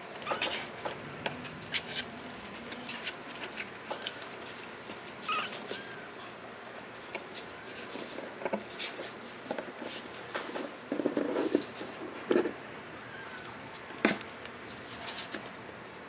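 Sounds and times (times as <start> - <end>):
kitten mewing: 5.2 - 6.2.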